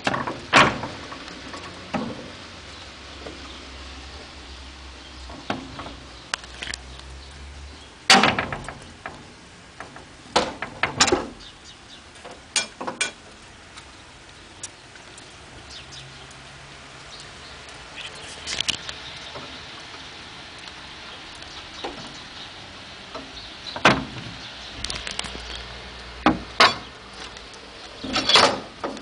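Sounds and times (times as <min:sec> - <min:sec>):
wooden shutters knocking and clattering: 0:00.0 - 0:02.6, 0:05.3 - 0:06.2, 0:08.1 - 0:13.3, 0:23.1 - 0:25.2, 0:26.2 - 0:27.0, 0:27.9 - 0:29.0.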